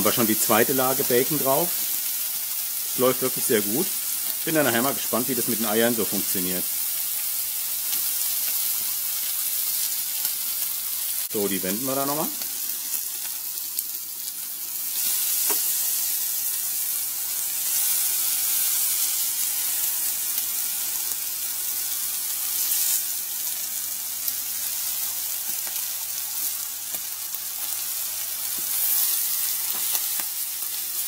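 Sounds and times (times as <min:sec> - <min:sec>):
bacon sizzling on a griddle: 0:00.0 - 0:31.0.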